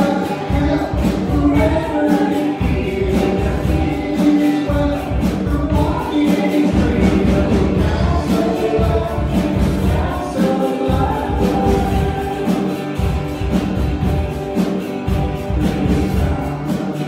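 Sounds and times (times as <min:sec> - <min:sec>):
drums keeping steady beat: 0:00.0 - 0:17.0
strummed acoustic guitar: 0:00.0 - 0:17.0
woman singing into microphone: 0:06.1 - 0:12.8.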